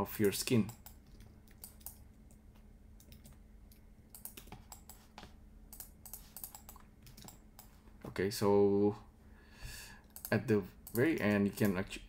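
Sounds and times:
faint steady hum: 0:00.0 - 0:12.0
keyboard keys clicking: 0:04.1 - 0:05.0, 0:05.7 - 0:07.7.

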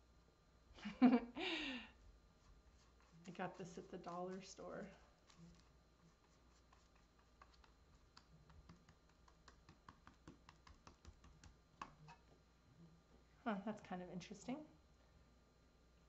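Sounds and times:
painting tool scratching on paper: 0:02.6 - 0:12.2.

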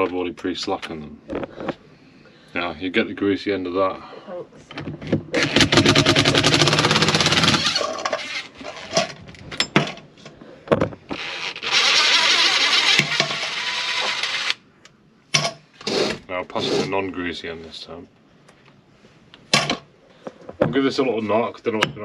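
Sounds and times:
power tool rattling on bolts: 0:05.3 - 0:09.8, 0:11.6 - 0:14.5
tool rasping: 0:11.1 - 0:14.6, 0:15.8 - 0:17.0.

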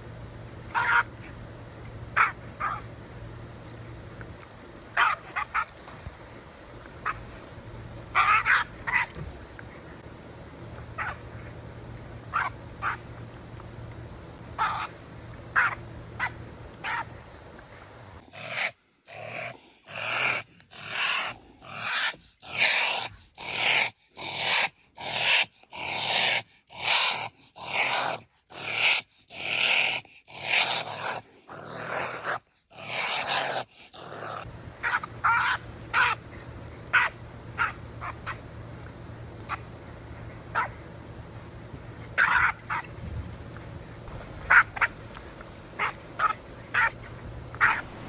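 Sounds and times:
low steady hum: 0:00.0 - 0:18.2, 0:34.4 - 0:48.0
honey badger calls: 0:00.7 - 0:01.3, 0:02.1 - 0:03.0, 0:04.9 - 0:06.4, 0:07.0 - 0:07.4, 0:08.1 - 0:09.9, 0:10.9 - 0:13.3, 0:14.5 - 0:17.2, 0:34.5 - 0:48.0.

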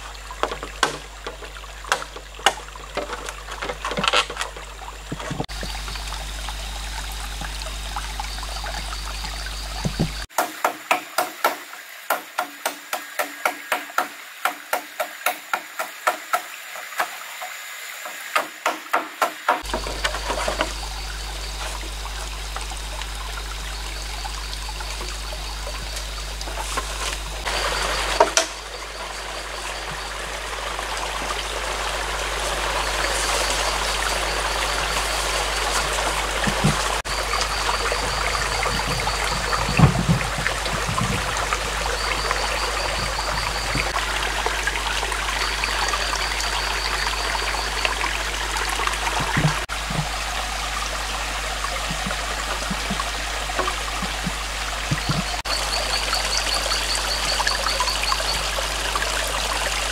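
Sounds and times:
stream running over rocks: 0:00.0 - 0:59.9
sharp knocks: 0:00.4 - 0:02.6.

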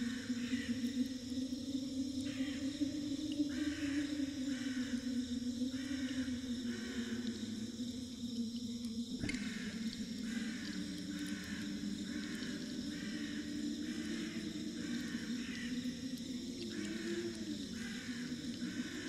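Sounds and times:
insects humming: 0:00.0 - 0:19.0.

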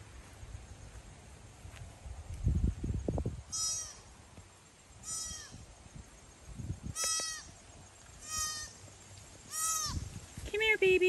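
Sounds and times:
deer fawn bleating: 0:03.5 - 0:04.1, 0:05.0 - 0:05.6, 0:06.9 - 0:07.5, 0:08.2 - 0:08.8, 0:09.5 - 0:10.0.

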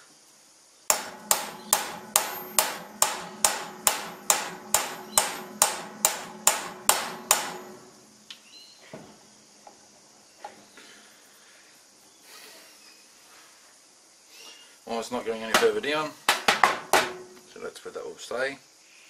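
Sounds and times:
hammer tapping on metal: 0:00.9 - 0:08.0, 0:15.5 - 0:17.5.

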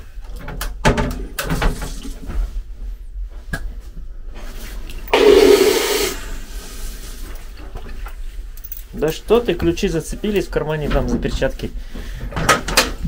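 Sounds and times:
rush of hissing noise: 0:05.2 - 0:06.6.

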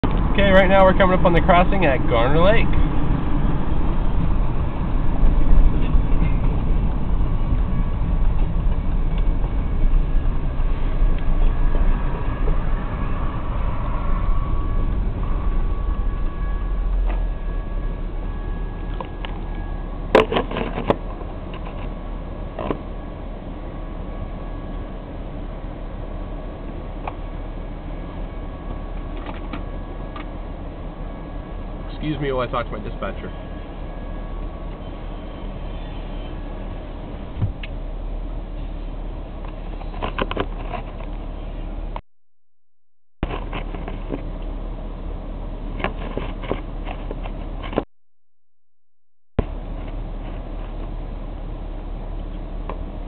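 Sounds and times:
freight train cars rumbling: 0:00.0 - 0:20.1
faint steady whine: 0:00.0 - 0:42.0
train low rumble: 0:00.0 - 0:42.0.

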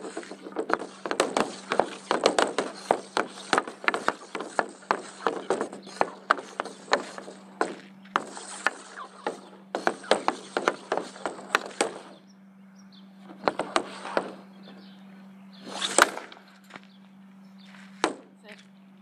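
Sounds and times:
stick blade scraping surface: 0:00.0 - 0:12.1
puck shot hit: 0:00.1 - 0:12.2, 0:15.7 - 0:16.5.

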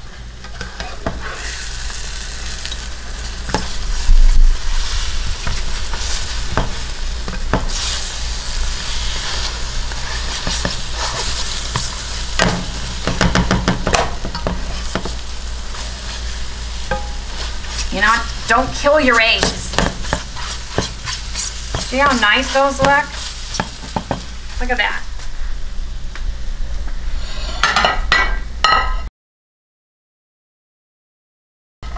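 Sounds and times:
eggs sizzling in a frying pan: 0:00.0 - 0:26.2
spatula scraping a pan: 0:00.4 - 0:24.8, 0:27.1 - 0:28.0.

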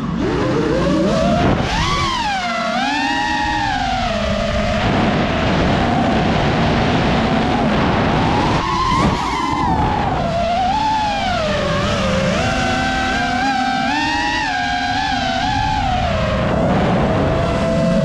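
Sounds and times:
electric motors whining: 0:00.0 - 0:18.0
rushing noise: 0:00.0 - 0:18.0.

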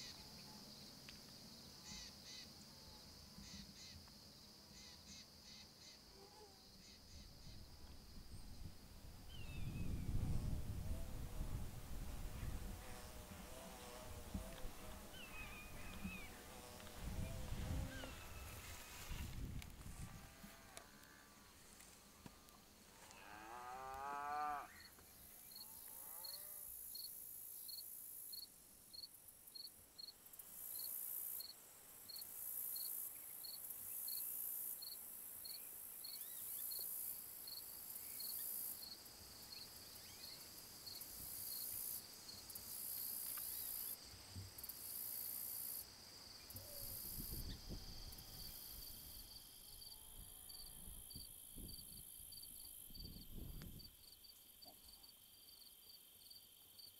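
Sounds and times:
insects chirping: 0:13.8 - 0:56.9
cow mooing: 0:23.1 - 0:24.8.

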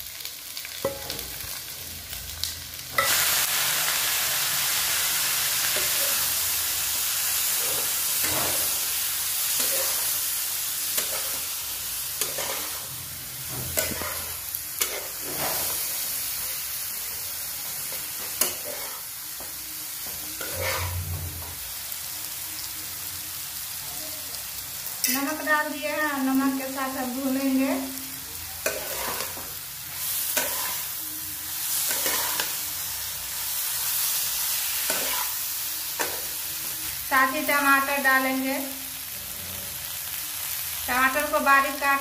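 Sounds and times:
vegetables sizzling in pan: 0:00.0 - 0:42.0
spatula scraping pan: 0:12.2 - 0:12.9, 0:13.5 - 0:15.9, 0:18.2 - 0:19.0, 0:20.4 - 0:21.5, 0:28.6 - 0:29.5, 0:30.3 - 0:31.0, 0:31.7 - 0:32.6, 0:34.8 - 0:35.4.

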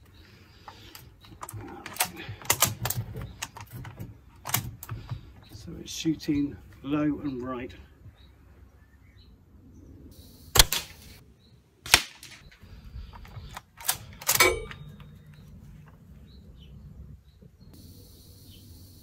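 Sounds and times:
rifle bolt clacks: 0:00.7 - 0:05.0, 0:13.2 - 0:14.9
airsoft rifle shots: 0:10.5 - 0:11.2, 0:11.9 - 0:12.5.

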